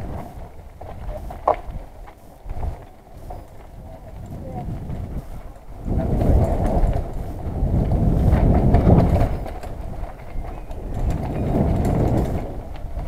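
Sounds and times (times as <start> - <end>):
bike rattles and knocks: 0.0 - 13.0
tyres rumbling on dirt: 0.0 - 13.0
wind buffeting microphone: 0.0 - 13.0.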